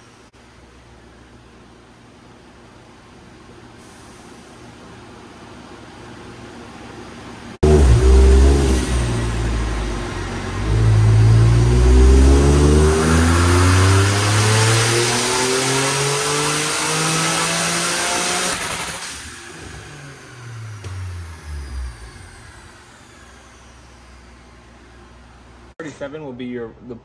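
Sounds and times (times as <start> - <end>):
car engine revving at full throttle: 7.6 - 24.1.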